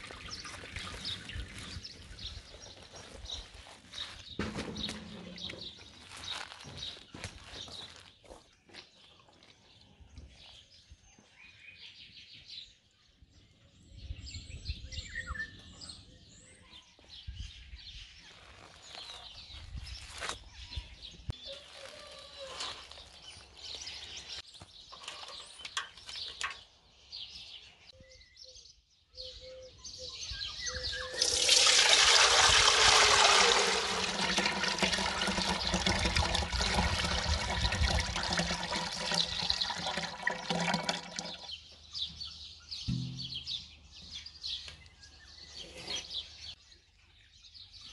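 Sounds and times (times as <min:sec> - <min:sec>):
birds chirping: 0:00.0 - 0:47.9
liquid pouring: 0:31.1 - 0:41.6.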